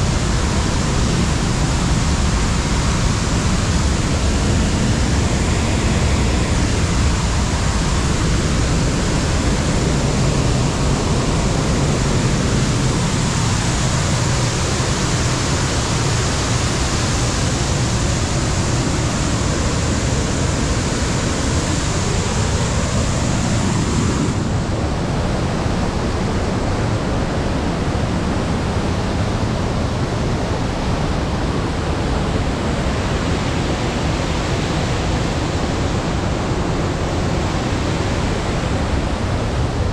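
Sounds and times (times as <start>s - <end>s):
waterfall rushing: 0.0s - 25.5s.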